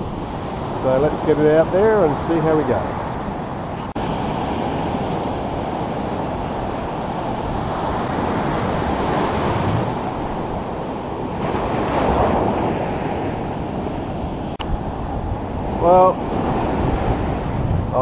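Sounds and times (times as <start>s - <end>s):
wind buffeting microphone: 0.0s - 18.0s
surf breaking on beach: 3.9s - 18.0s.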